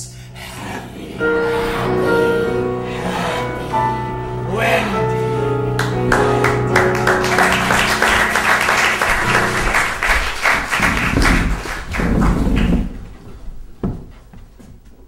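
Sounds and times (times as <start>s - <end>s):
music with sustained notes: 0.0s - 13.7s
audience applauding: 2.7s - 13.2s.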